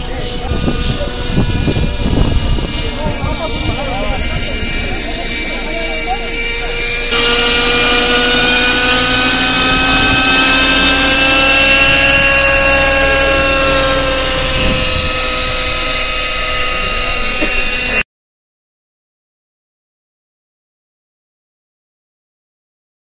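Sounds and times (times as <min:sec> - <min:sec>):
model helicopter engine whine: 0:00.0 - 0:18.0.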